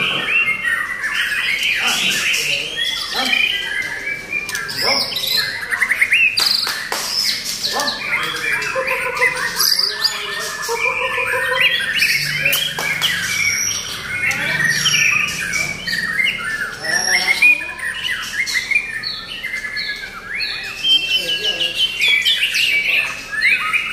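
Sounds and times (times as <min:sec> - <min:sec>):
bird singing whistled phrases: 0:07.3 - 0:23.9.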